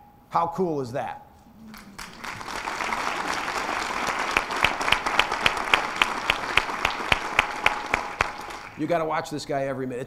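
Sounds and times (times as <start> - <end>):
sharp close claps: 1.7 - 9.0
audience applauding: 1.7 - 9.2.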